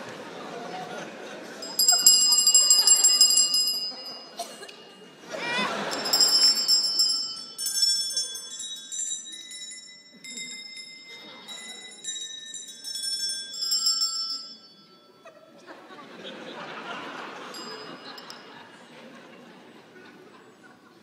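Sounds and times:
high bell-like chimes: 1.6s - 15.6s, 17.3s - 18.8s.

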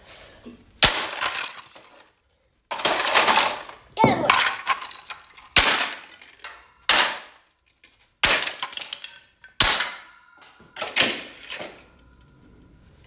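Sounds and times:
sledgehammer smashing plastic: 0.8s - 7.5s, 8.2s - 11.8s
broken pieces clattering: 0.8s - 12.2s.

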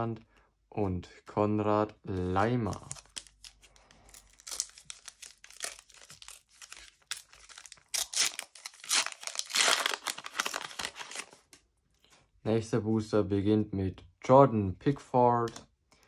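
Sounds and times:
card pack wrapper tearing: 2.4s - 11.5s.

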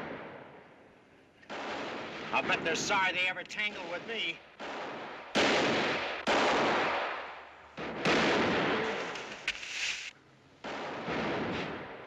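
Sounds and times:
revolver gunshots echoing: 1.5s - 9.5s, 10.6s - 12.0s
short sharp crack: 8.8s - 10.1s.

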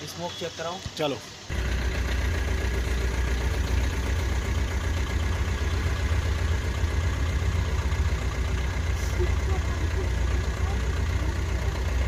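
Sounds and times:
diesel engine idling: 1.4s - 12.0s.

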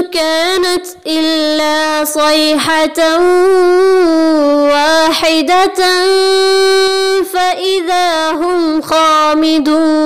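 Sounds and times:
melodic quran recitation: 0.0s - 10.0s.

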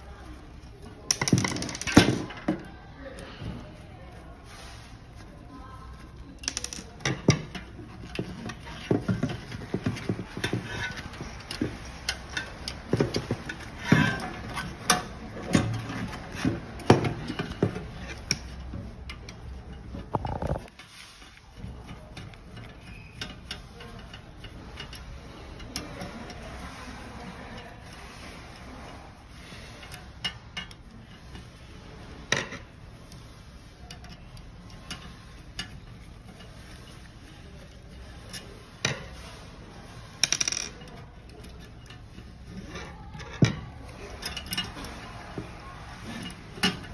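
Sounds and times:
screwdriver clicking on metal parts: 6.0s - 20.6s, 21.2s - 26.4s
clicks of small metal parts: 6.4s - 7.7s, 40.2s - 42.0s.

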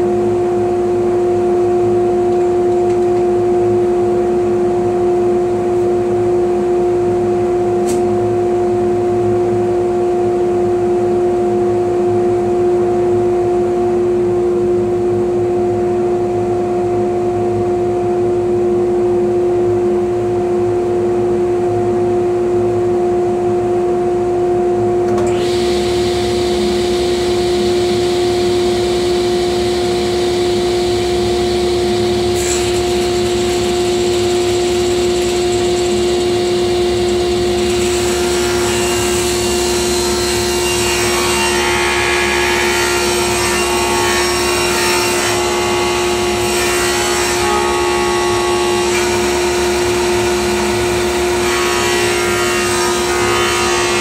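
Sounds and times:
table saw humming: 25.1s - 54.0s.

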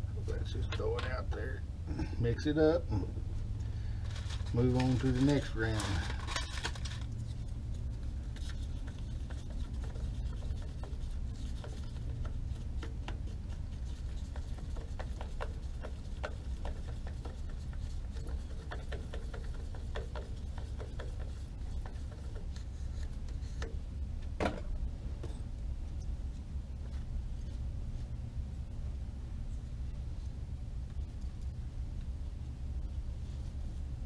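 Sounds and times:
steady low hum: 0.0s - 34.0s
stirrer scraping plastic cup: 4.1s - 23.8s
stirrer clicking against cup: 8.4s - 22.6s.

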